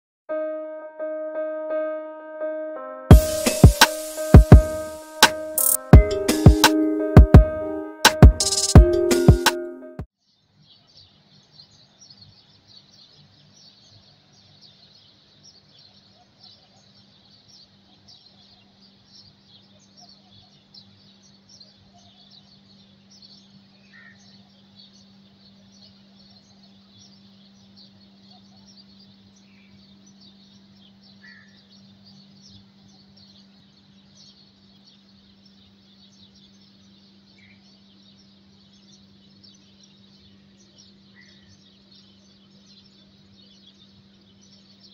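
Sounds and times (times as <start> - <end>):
small birds chirping: 10.2 - 44.9
single bird calls: 31.2 - 31.6.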